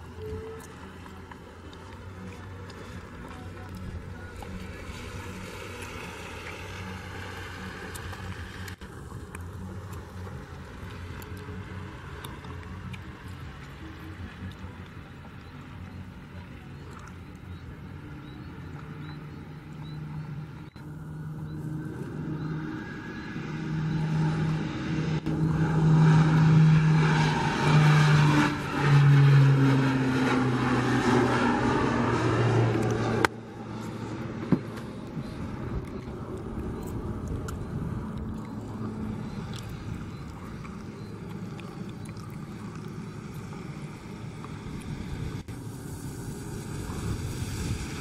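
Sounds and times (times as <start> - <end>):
distant plane drone: 0.0 - 48.0
turboprop plane taking off: 17.4 - 48.0.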